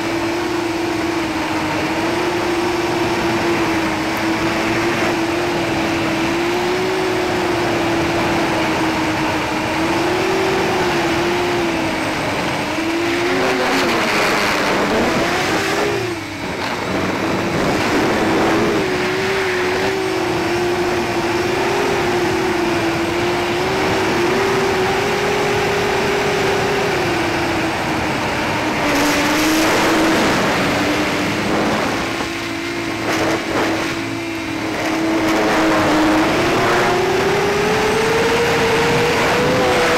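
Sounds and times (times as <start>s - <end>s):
drone motors whining: 0.0s - 39.9s
steady rushing noise: 0.0s - 39.9s.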